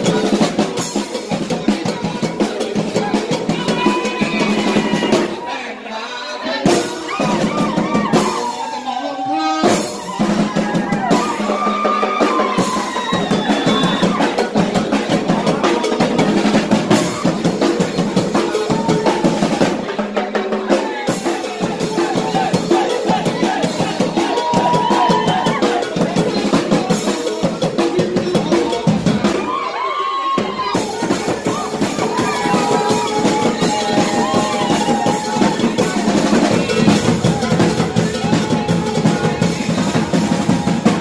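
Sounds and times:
marching drums beating: 0:00.0 - 0:05.4, 0:06.6 - 0:08.6, 0:09.6 - 0:29.6, 0:30.4 - 0:41.0
man singing through microphone: 0:01.5 - 0:07.5, 0:08.6 - 0:10.0.

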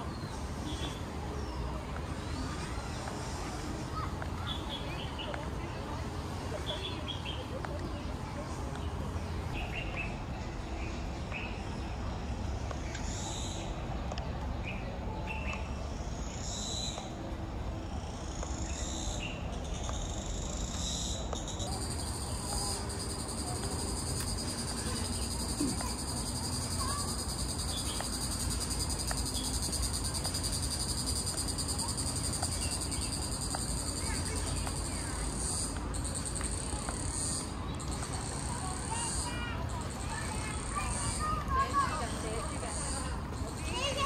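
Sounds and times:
cicadas buzzing: 0:15.8 - 0:44.0.

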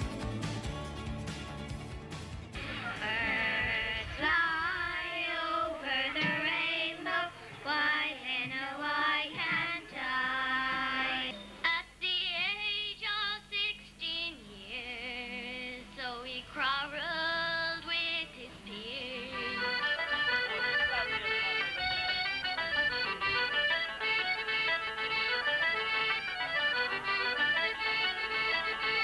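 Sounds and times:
children singing into a microphone: 0:02.6 - 0:11.4.

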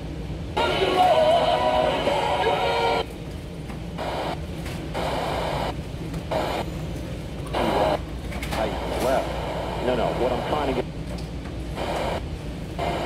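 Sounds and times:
radio static bursts: 0:04.0 - 0:04.4, 0:05.0 - 0:06.6, 0:07.6 - 0:08.0, 0:08.6 - 0:10.8, 0:11.8 - 0:12.2, 0:12.8 - 0:13.0.

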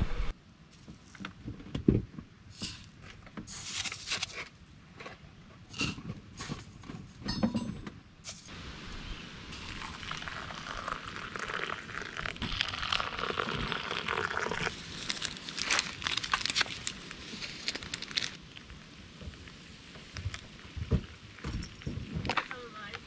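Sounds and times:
rustling and crinkling: 0:02.6 - 0:05.2, 0:12.0 - 0:23.0.

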